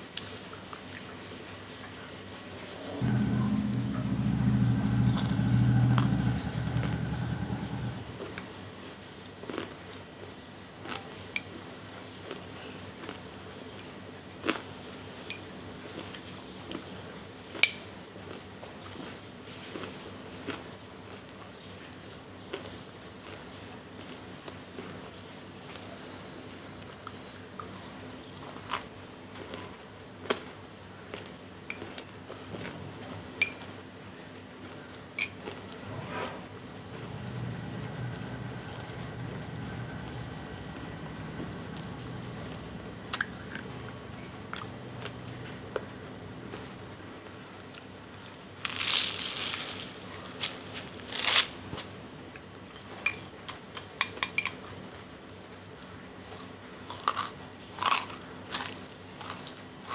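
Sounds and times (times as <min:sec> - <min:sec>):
metal spoon clinking in glass bowl: 0:33.4 - 0:33.6, 0:35.2 - 0:35.4, 0:54.0 - 0:54.6.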